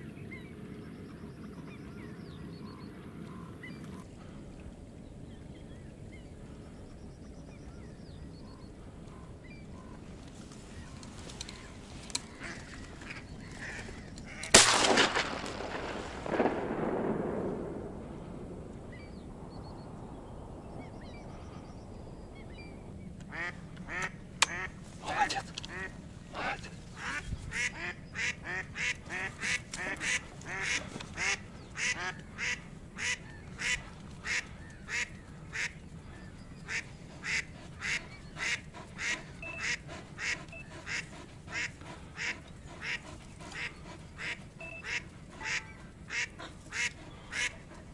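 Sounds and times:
shotgun shot echoing: 14.5 - 18.0
duck decoy quacking: 23.3 - 24.8, 25.7 - 35.8, 36.7 - 47.8.

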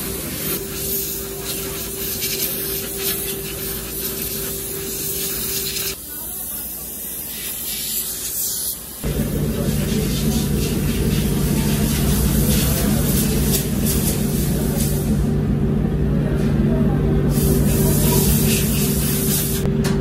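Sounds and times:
steady hum: 0.0 - 8.0, 8.7 - 20.0
compressed air hissing: 0.0 - 15.3, 17.3 - 19.7
low machine drone: 9.0 - 20.0.

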